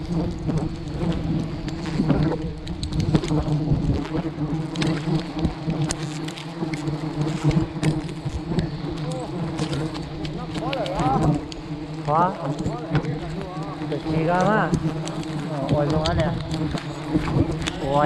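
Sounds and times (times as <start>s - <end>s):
honeybees buzzing: 0.0s - 18.0s.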